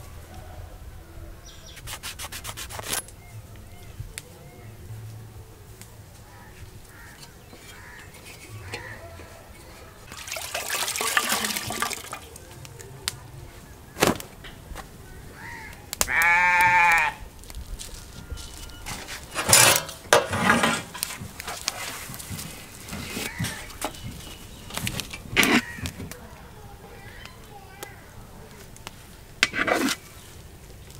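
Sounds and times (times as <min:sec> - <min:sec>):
livestock bleating: 0:16.1 - 0:17.2.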